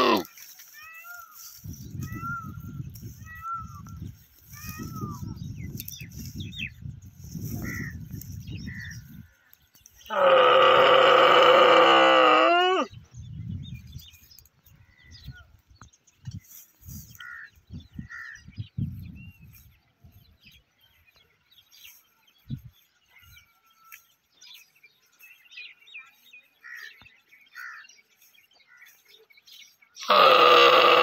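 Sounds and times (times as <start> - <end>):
camel calling: 0.0 - 1.4, 10.1 - 12.9, 30.0 - 31.0.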